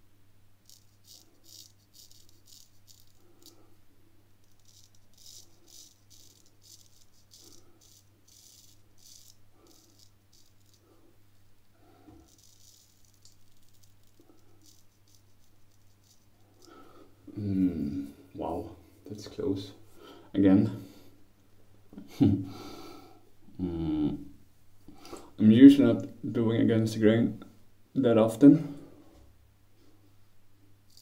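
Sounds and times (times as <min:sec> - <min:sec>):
straight razor scraping stubble: 0:00.6 - 0:03.7, 0:04.4 - 0:11.0, 0:12.1 - 0:16.8.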